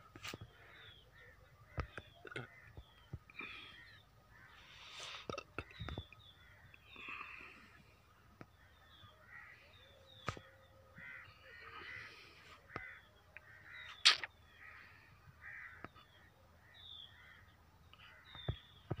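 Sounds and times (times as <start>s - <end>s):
birds harsh calls: 0.1s - 19.0s
high falling bird chirps: 9.2s - 16.1s.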